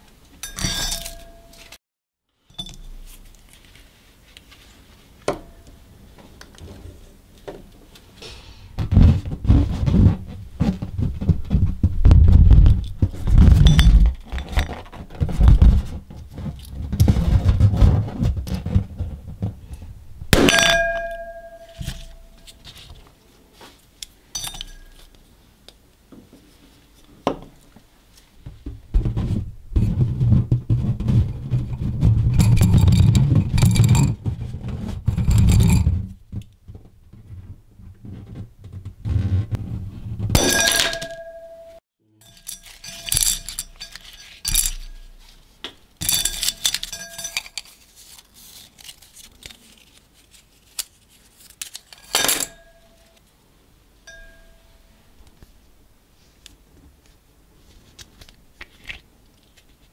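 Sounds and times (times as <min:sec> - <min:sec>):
small objects clinking against glass: 0:00.4 - 0:01.8, 0:02.5 - 0:03.2, 0:20.4 - 0:22.6, 0:24.4 - 0:25.1, 0:40.4 - 0:45.3, 0:46.0 - 0:47.8.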